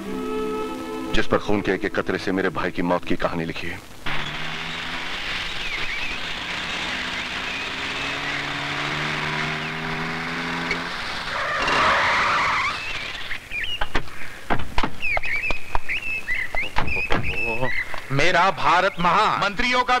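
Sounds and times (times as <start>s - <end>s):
car engine humming: 3.8s - 13.6s
tyres skidding: 3.9s - 14.1s.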